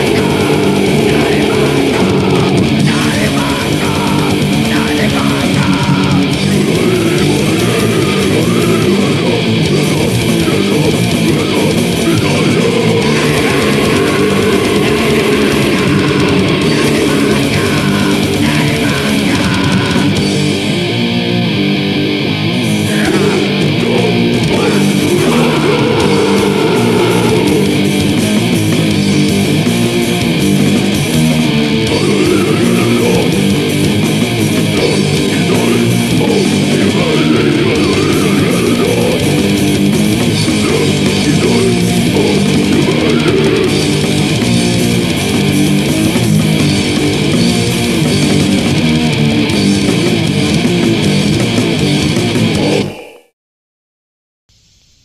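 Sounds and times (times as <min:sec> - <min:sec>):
punk song with distorted guitar: 0:00.0 - 0:53.2.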